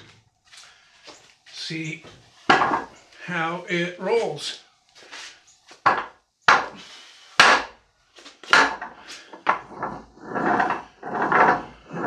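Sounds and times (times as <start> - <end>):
sharp wooden knocks: 5.8 - 6.8, 7.4 - 7.8, 8.5 - 9.6
wooden cart rolling: 9.4 - 12.0.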